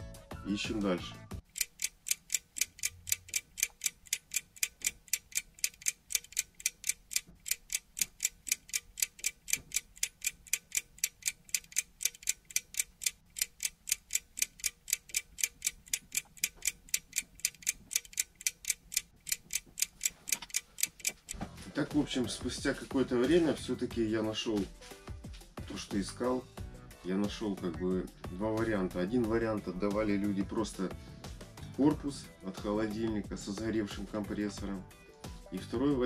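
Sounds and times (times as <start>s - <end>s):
fast clock-like ticking: 1.4s - 21.4s.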